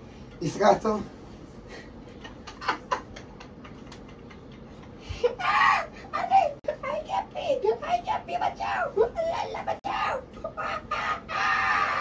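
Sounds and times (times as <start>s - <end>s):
loud vocal exclamation: 5.3s - 12.0s.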